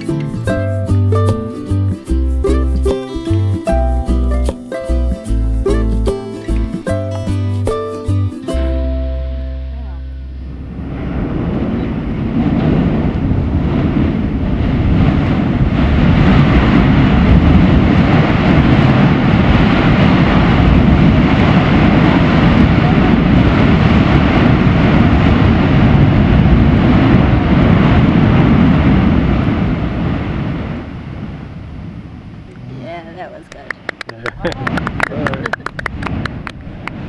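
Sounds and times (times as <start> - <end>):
volcanic vent erupting: 10.4 - 37.0.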